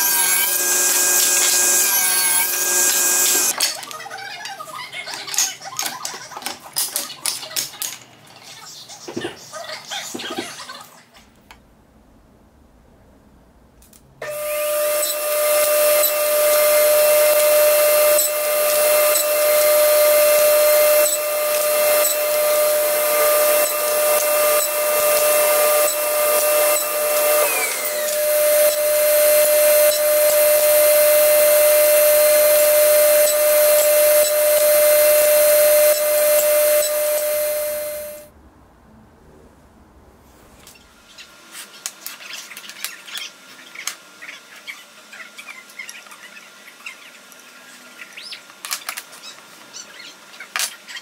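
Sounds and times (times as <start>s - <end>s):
table saw cutting wood: 0.0s - 3.6s, 14.2s - 38.3s.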